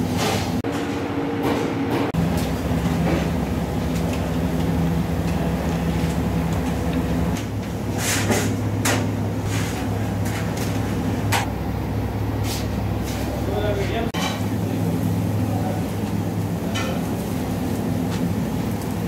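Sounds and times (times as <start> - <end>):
low machine hum: 0.0 - 19.0
kitchen clicks and clatter: 16.7 - 17.1.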